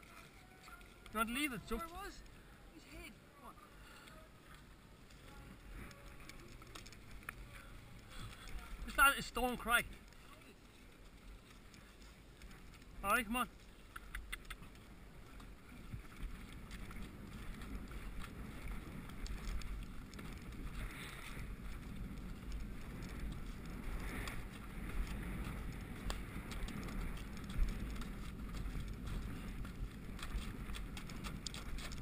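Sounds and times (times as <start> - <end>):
hooves in mud: 0.0 - 32.0
wind on microphone: 14.0 - 32.0.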